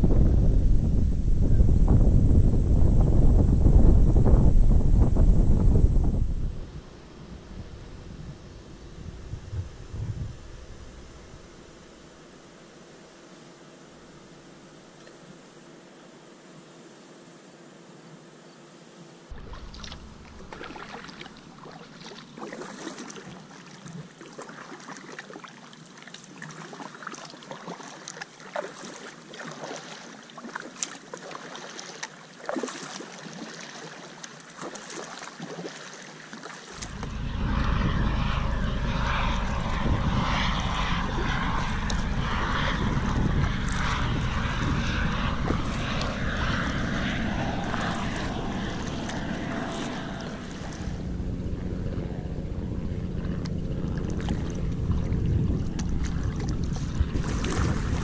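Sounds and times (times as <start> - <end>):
wind buffeting microphone: 0.0 - 11.8, 36.8 - 58.0
paddle splashes and drips: 19.3 - 36.8, 53.9 - 58.0.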